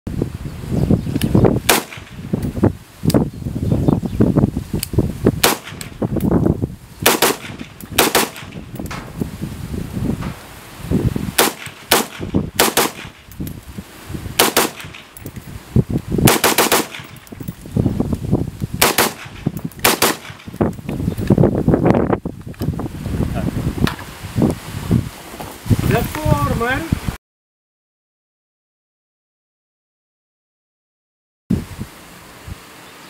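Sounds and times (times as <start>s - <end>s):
rifle shots: 1.6s - 2.2s, 5.4s - 6.0s, 7.0s - 9.0s, 11.4s - 13.3s, 14.4s - 15.2s, 16.2s - 17.2s, 18.8s - 20.5s.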